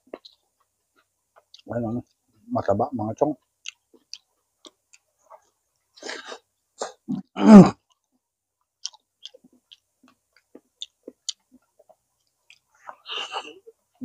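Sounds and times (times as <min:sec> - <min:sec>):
wet chewing and mouth smacks: 0:00.0 - 0:02.5, 0:03.4 - 0:06.0, 0:07.8 - 0:13.0.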